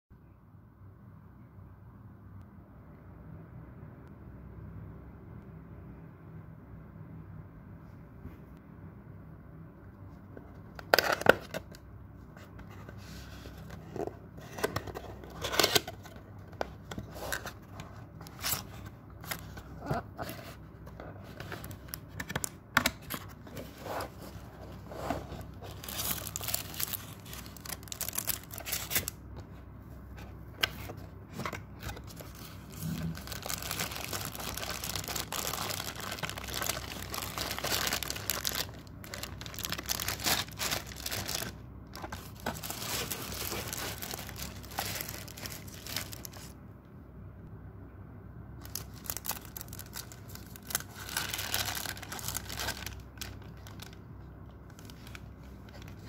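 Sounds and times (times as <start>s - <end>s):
plastic and tissue paper crinkling: 12.4s - 29.2s, 30.7s - 46.6s, 48.6s - 56.0s.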